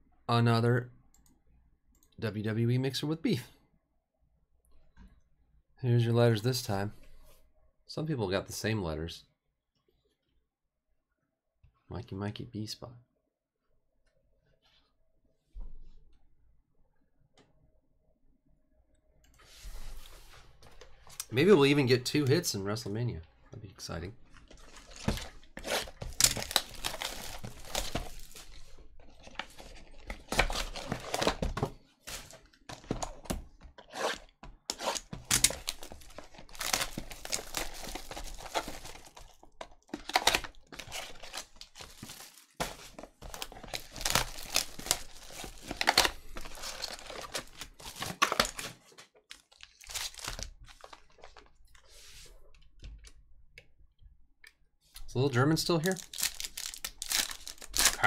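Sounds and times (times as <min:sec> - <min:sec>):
plastic wrap crinkling and tearing: 0:24.3 - 0:33.2, 0:33.8 - 0:51.5, 0:55.8 - 0:58.0.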